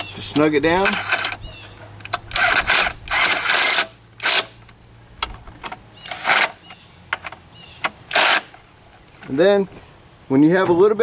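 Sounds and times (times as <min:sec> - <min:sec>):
cordless power driver bursts: 0:02.3 - 0:04.6.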